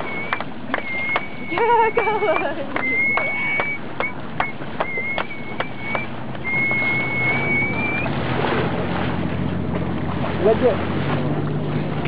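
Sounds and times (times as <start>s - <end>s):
long rising whistle: 0.0s - 8.1s
short whistled notes: 0.0s - 8.1s
boat engine humming: 0.0s - 12.0s.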